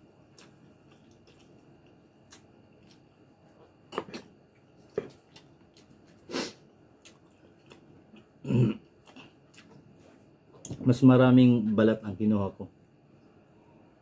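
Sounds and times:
man clearing throat: 8.4 - 8.9.

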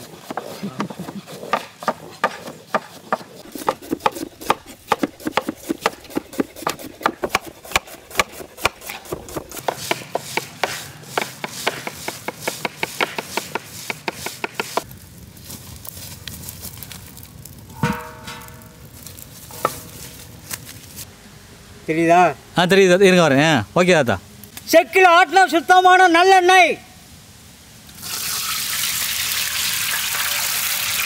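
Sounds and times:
knife chopping on wooden board: 0.1 - 14.9.

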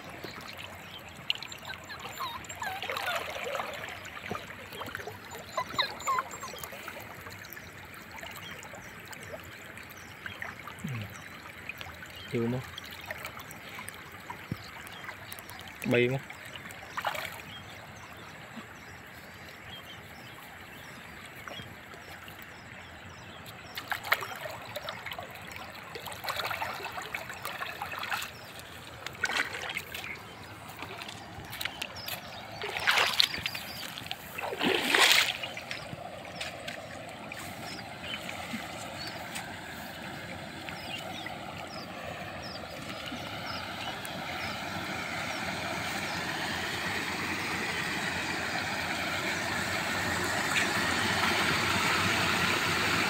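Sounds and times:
wading through muddy water: 0.0 - 53.0.

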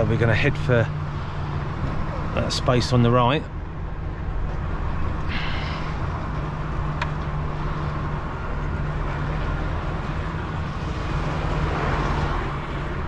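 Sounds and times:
truck diesel engine running: 3.5 - 11.5.

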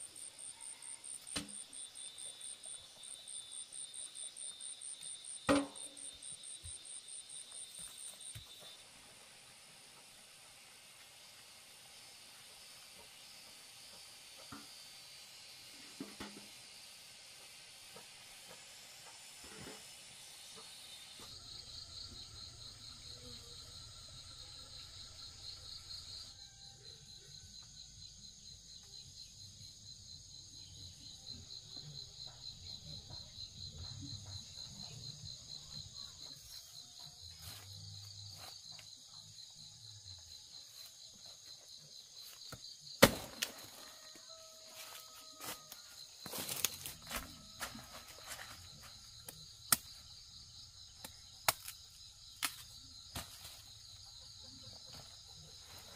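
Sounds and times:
insects trilling: 0.0 - 55.9
high steady hiss: 1.3 - 21.2.

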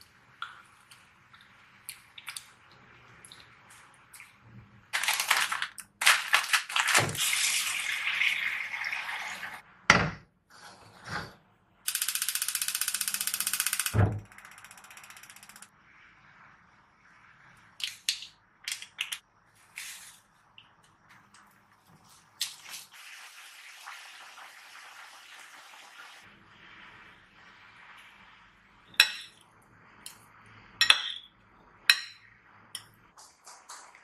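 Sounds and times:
scissors snipping plastic packet: 5.0 - 7.1
plastic packet crinkling: 5.0 - 7.2.

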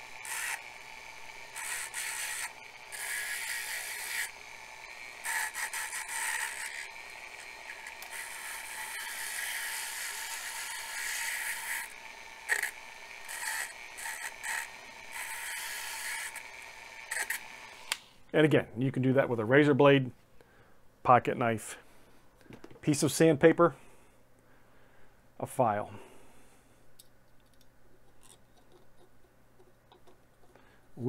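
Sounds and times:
rotary tool whining: 0.0 - 18.0.

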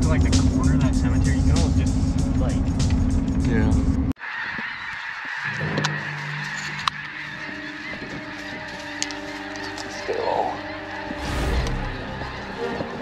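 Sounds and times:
geese honking: 4.2 - 13.0.

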